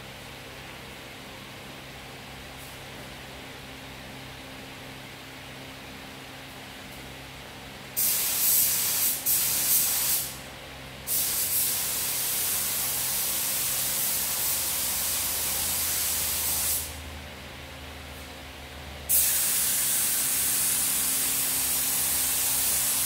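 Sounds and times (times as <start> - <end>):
spray gun hissing: 8.0 - 10.4, 11.1 - 17.0, 19.1 - 23.0.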